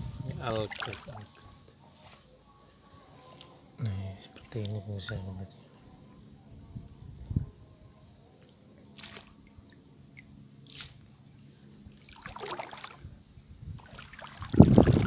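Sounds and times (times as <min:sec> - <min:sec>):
seawater dripping and splashing: 0:00.4 - 0:01.4, 0:08.4 - 0:11.2, 0:11.9 - 0:13.0, 0:13.8 - 0:15.0.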